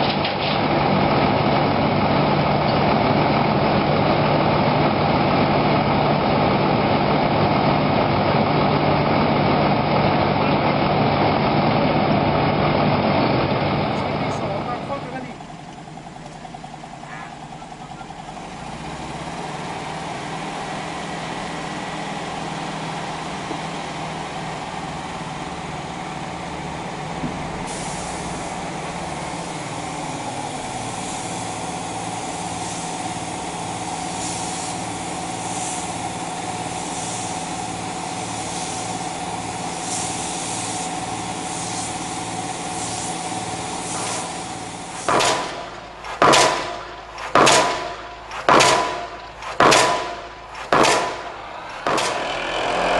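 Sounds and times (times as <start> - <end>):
machine engine running: 0.0 - 52.9
paint spray hissing: 27.7 - 28.6, 29.2 - 46.6
pile driver hammer striking: 45.0 - 52.8.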